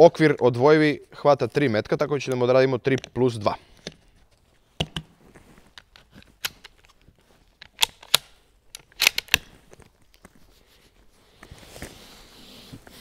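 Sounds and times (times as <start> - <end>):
rifle bolt action clacking: 7.6 - 9.5.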